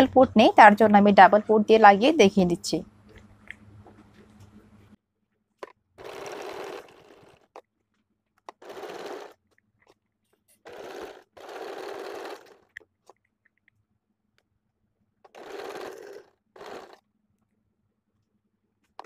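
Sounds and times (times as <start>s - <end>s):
electric sewing machine stitching: 6.0s - 7.6s, 8.5s - 9.4s, 10.6s - 12.8s, 15.3s - 17.0s.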